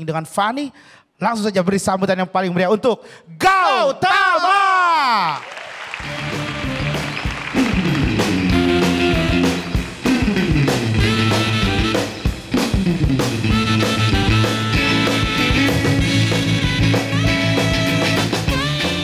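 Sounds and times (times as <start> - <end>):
drum kit steady rhythm: 6.0 - 19.0
guitar: 6.0 - 19.0.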